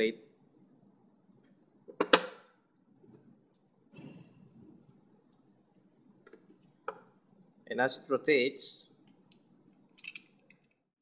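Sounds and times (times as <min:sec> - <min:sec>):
metal parts clinking and clanking: 0:10.0 - 0:10.8.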